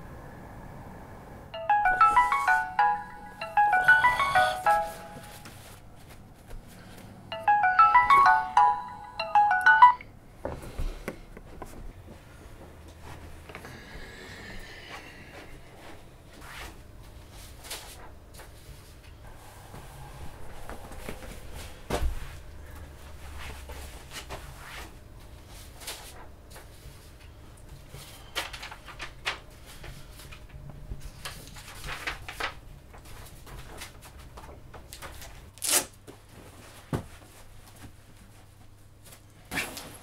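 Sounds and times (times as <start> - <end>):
clothes and papers rustling: 2.1 - 7.2, 15.8 - 40.0.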